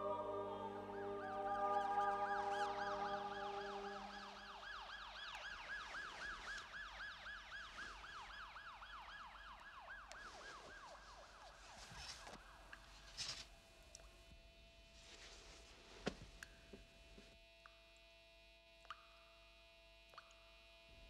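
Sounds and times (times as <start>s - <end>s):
held musical chord: 0.0s - 4.6s
high warbling tone: 0.0s - 4.7s.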